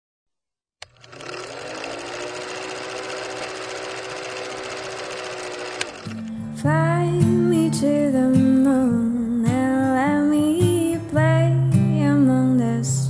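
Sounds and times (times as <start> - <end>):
film projector clattering: 0.8 - 6.4.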